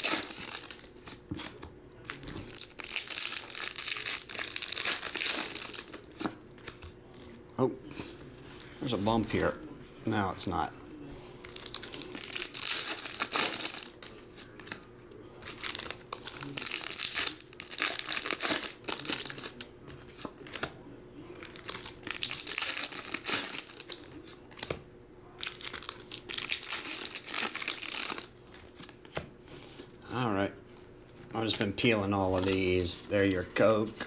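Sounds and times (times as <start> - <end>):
foil wrappers tearing and crinkling: 0.0 - 1.2, 2.1 - 6.8, 11.5 - 14.8, 15.4 - 19.7, 21.4 - 24.7, 25.4 - 29.2.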